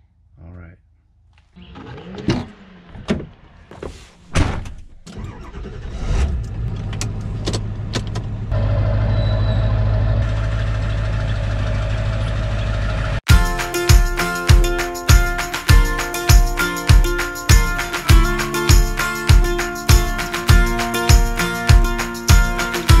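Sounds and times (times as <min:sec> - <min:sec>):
truck engine starting and running: 0:01.4 - 0:15.8
music: 0:13.3 - 0:23.0.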